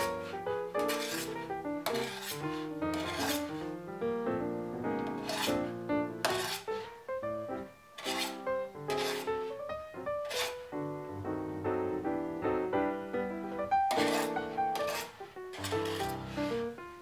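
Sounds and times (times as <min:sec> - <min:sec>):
knife scraping dough on metal: 0:00.0 - 0:03.8, 0:05.0 - 0:07.0, 0:08.0 - 0:09.6, 0:10.2 - 0:10.6, 0:13.9 - 0:16.7
background music: 0:00.0 - 0:17.0.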